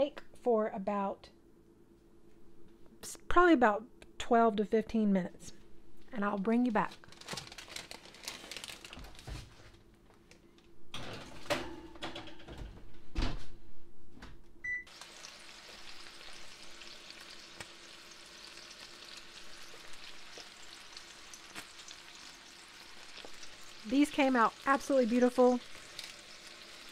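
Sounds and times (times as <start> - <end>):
oven door shutting: 10.9 - 13.5
short oven beep: 14.6 - 14.9.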